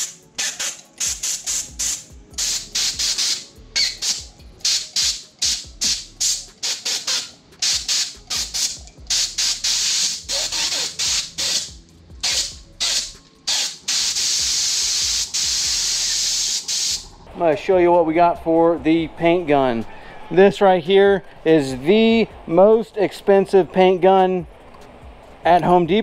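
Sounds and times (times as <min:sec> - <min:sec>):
spray gun hissing: 0:00.0 - 0:17.2
background music: 0:00.0 - 0:26.0.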